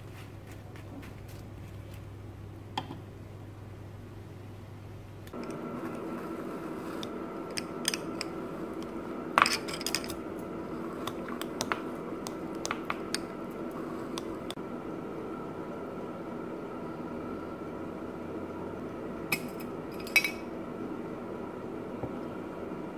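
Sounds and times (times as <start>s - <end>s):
steady background hum: 0.0s - 22.9s
wire masher clinking on glass: 19.4s - 20.4s.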